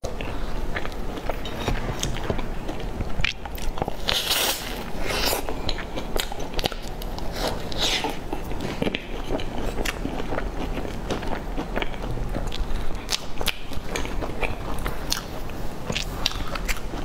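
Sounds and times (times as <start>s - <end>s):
crunchy pastry chewing: 0.0s - 17.0s.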